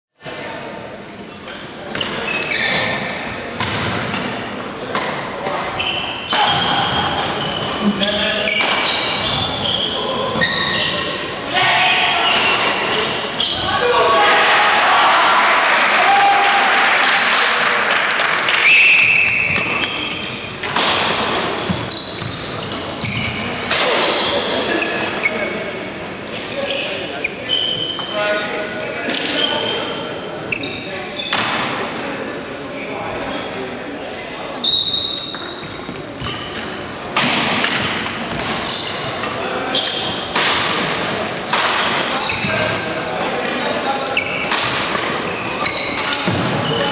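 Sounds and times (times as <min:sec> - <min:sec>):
shoe squeaks on court floor: 0:01.4 - 0:04.3, 0:05.6 - 0:11.2, 0:11.8 - 0:13.8, 0:18.6 - 0:20.6, 0:21.6 - 0:25.8, 0:26.5 - 0:28.2, 0:29.2 - 0:31.7, 0:34.6 - 0:36.8, 0:37.8 - 0:43.2, 0:43.9 - 0:46.9
racquets hitting shuttlecock: 0:19.3 - 0:22.3, 0:40.3 - 0:42.5.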